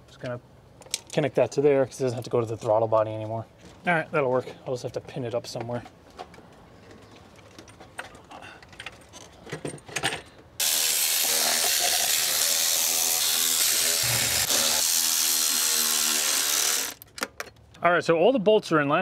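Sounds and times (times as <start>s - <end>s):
tools clicking and knocking: 5.6s - 10.5s
electric ratchet running: 10.6s - 17.1s.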